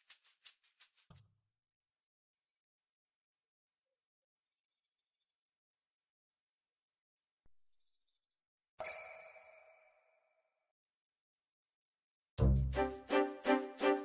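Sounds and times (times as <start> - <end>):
crickets chirping: 8.0 - 11.1.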